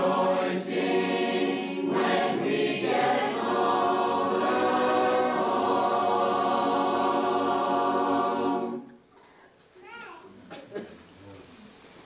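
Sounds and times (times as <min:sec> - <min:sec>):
choir singing sustained chord: 0:00.0 - 0:09.0.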